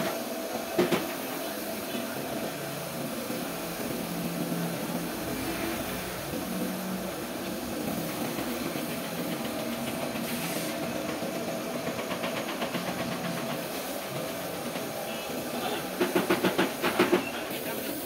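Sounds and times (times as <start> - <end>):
paint spray gun hissing: 10.2 - 11.4.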